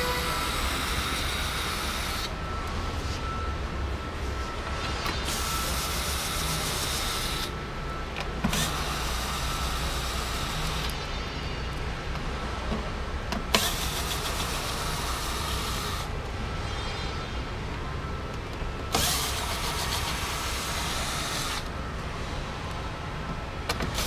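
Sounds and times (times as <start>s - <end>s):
cordless drill running: 0.0s - 2.3s, 5.3s - 7.5s, 8.5s - 10.9s, 13.6s - 16.1s, 18.9s - 21.7s.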